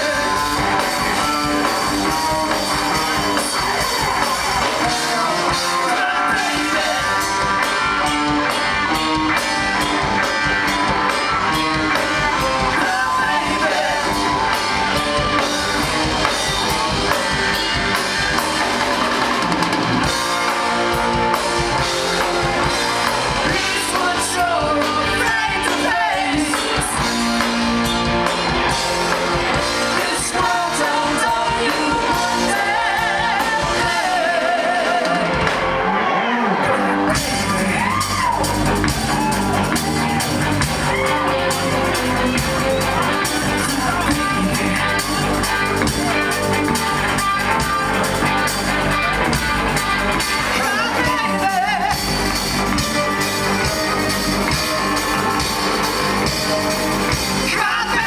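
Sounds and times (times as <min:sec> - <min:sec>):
singer singing into microphone: 0:00.0 - 0:07.5, 0:12.4 - 0:14.4, 0:23.4 - 0:27.0, 0:29.8 - 0:38.3, 0:50.4 - 0:52.2, 0:57.4 - 0:58.0
bass guitar: 0:00.0 - 0:58.0
drums: 0:00.0 - 0:58.0
electric guitars: 0:00.0 - 0:58.0.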